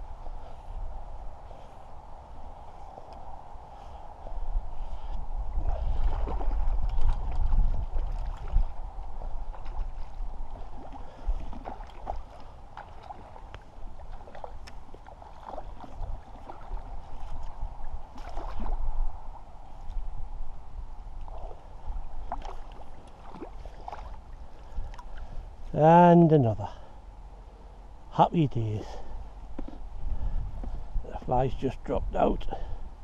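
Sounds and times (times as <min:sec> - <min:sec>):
wind rumble on microphone: 0:00.0 - 0:25.8, 0:27.6 - 0:33.0
fish splashing in water: 0:09.5 - 0:18.8.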